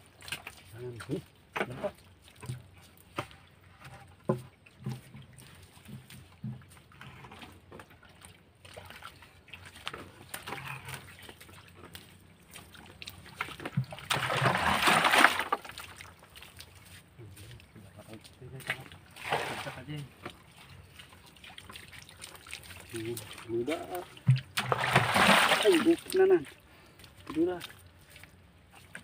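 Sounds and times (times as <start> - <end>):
small splashes and drips: 0.0 - 29.0
bucket of water emptied splashing: 12.5 - 16.7, 18.6 - 26.5.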